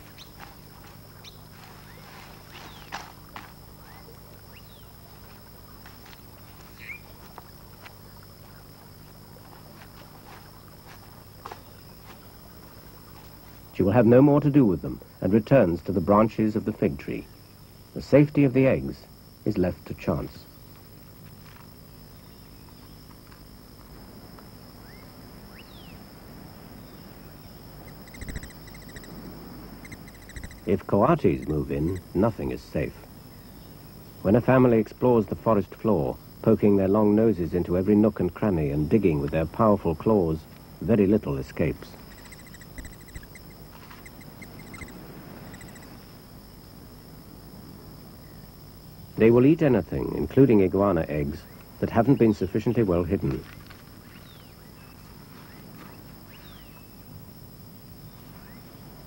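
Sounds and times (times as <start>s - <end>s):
insect drone: 0.0s - 59.0s
low hum: 19.5s - 49.1s
buzzy pulsed call: 27.2s - 32.2s, 42.1s - 46.1s
bird chirps and clicks: 27.8s - 29.2s, 29.8s - 30.7s, 42.1s - 45.9s.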